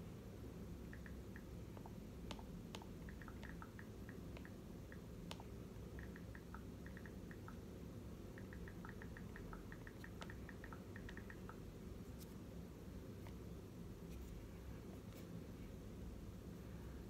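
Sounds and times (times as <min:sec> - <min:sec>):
low room hum: 0:00.0 - 0:17.0
keyboard typing clicks: 0:00.9 - 0:07.6, 0:08.3 - 0:11.6.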